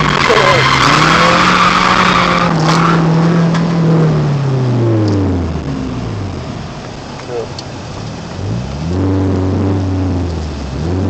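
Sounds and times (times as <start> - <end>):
tyres squealing: 0.0 - 3.5
car engine at high revs: 0.0 - 11.0.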